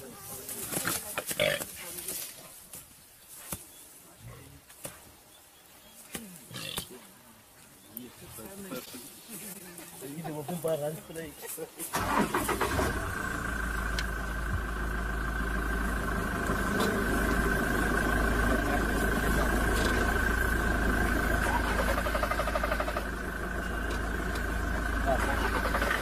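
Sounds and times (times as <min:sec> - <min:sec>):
engine idling: 0:11.9 - 0:26.0.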